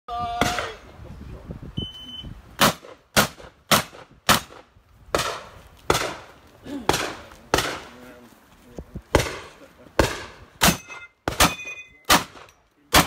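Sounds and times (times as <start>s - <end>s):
shotgun shots: 2.6s - 6.3s, 6.9s - 8.0s, 9.1s - 13.0s.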